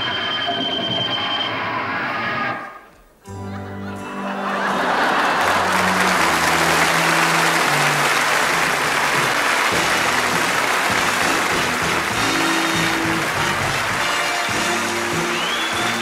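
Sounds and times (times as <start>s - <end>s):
band playing: 3.3s - 16.0s
audience applauding: 4.3s - 16.0s
bass line: 5.6s - 16.0s.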